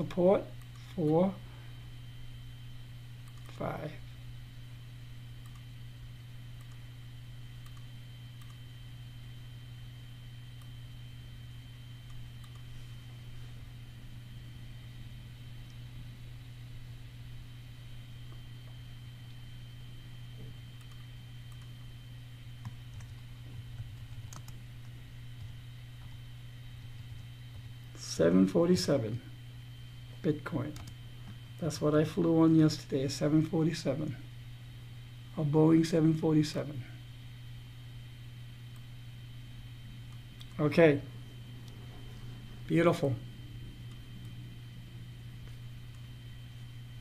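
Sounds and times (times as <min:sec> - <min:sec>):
faint keyboard typing: 0:00.0 - 0:01.2, 0:03.2 - 0:03.8, 0:05.4 - 0:05.8, 0:06.6 - 0:06.9, 0:07.6 - 0:08.7, 0:12.0 - 0:12.8, 0:20.4 - 0:21.9, 0:22.6 - 0:26.2, 0:26.9 - 0:28.0, 0:30.6 - 0:31.4
low electrical hum: 0:00.0 - 0:47.0
faint computer mouse clicks: 0:05.4 - 0:05.7, 0:07.6 - 0:08.6, 0:12.1 - 0:12.7.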